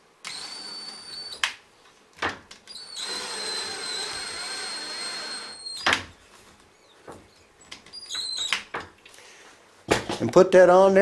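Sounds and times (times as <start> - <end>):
drill motor whine: 0.2 - 1.4, 2.7 - 5.9.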